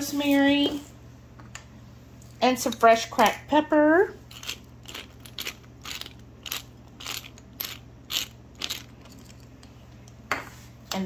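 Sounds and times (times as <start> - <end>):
pepper grinder crunching: 4.2 - 9.5.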